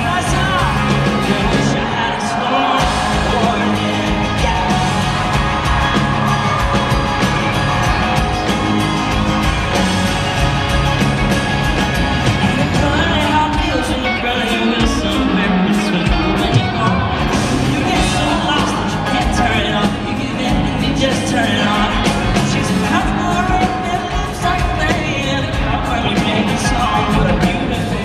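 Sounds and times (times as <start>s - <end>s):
man singing: 0.0s - 5.8s, 12.5s - 28.0s
crowd yelling: 0.0s - 28.0s
live country-rock band: 0.0s - 28.0s.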